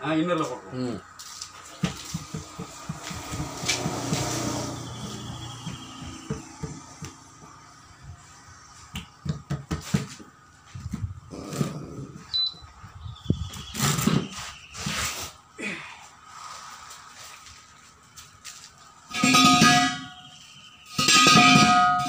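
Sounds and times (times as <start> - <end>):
hands rubbing and knocking tyre: 1.6 - 7.7, 8.8 - 11.8.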